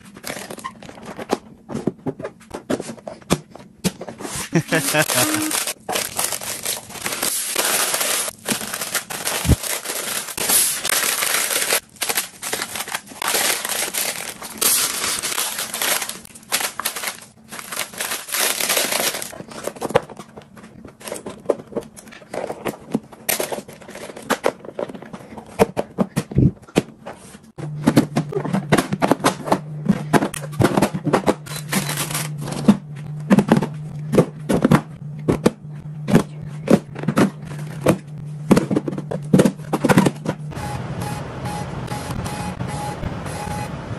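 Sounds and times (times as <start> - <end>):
plastic gloves crinkling: 4.5 - 19.3.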